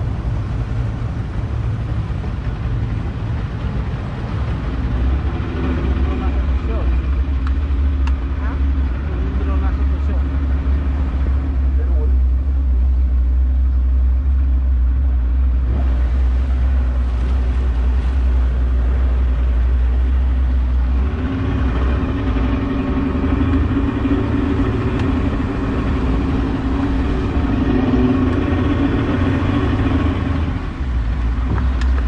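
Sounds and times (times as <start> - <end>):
outboard motor rumbling: 0.0 - 32.0
pitched engine hum: 0.0 - 32.0.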